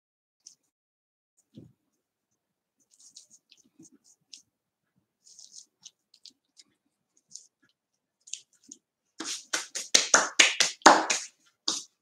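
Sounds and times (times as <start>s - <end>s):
paper rustling: 5.2s - 7.5s.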